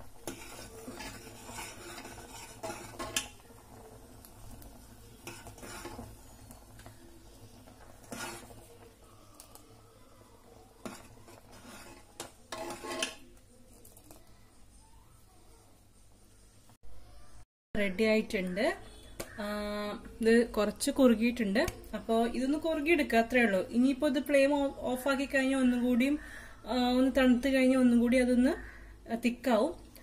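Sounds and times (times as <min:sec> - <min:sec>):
metal spoon scraping pot: 0:00.0 - 0:03.4, 0:05.1 - 0:06.9, 0:07.5 - 0:08.8, 0:10.8 - 0:13.4.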